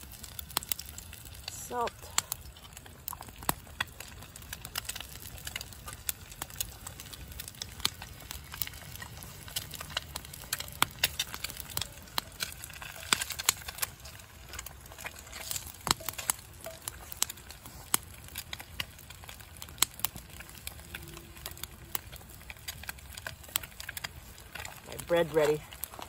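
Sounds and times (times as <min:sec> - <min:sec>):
eggs frying in oil: 0:00.0 - 0:26.0
wood fire crackling: 0:00.0 - 0:26.0.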